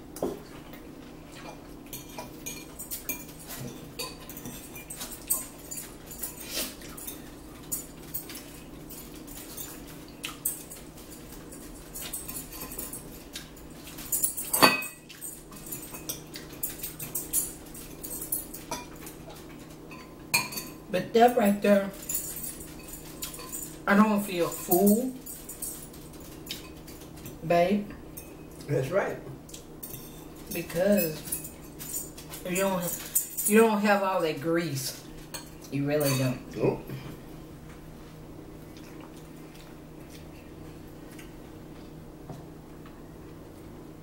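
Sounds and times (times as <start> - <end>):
low steady hum: 0.0 - 44.0
chewing: 0.4 - 14.4, 15.1 - 19.8, 25.2 - 27.4, 38.5 - 42.0.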